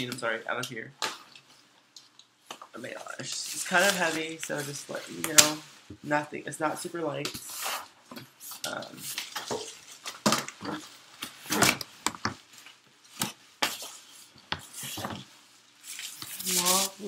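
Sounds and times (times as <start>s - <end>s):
styrofoam and cardboard rustling: 3.1s - 5.9s, 8.5s - 17.0s.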